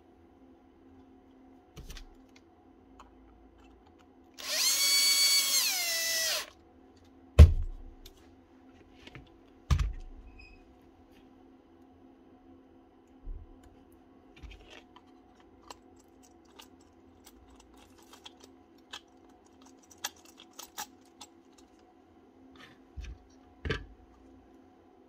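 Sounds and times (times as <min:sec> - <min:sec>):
power tool motor whine: 0:04.4 - 0:06.5.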